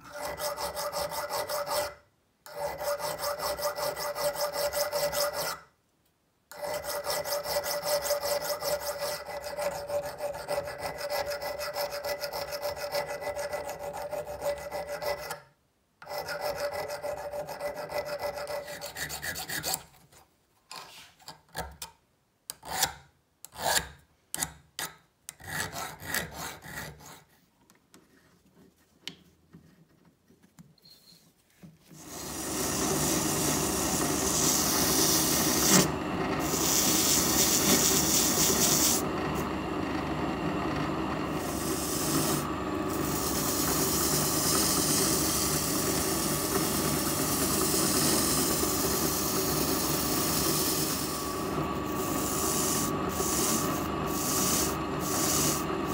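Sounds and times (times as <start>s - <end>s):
file rasping on steel: 0.0s - 5.7s, 6.5s - 19.9s, 22.5s - 24.0s, 25.4s - 27.4s, 32.0s - 39.0s, 41.4s - 55.9s.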